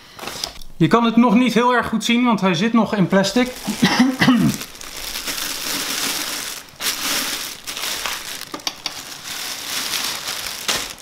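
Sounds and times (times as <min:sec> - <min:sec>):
plastic wrap crinkling: 0:02.9 - 0:11.0.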